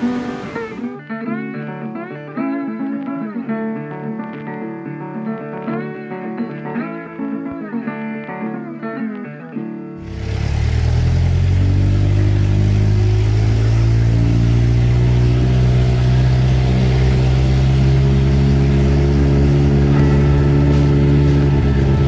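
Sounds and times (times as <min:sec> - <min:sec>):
blues guitar music: 0:00.0 - 0:22.0
vehicle engine running: 0:10.0 - 0:22.0.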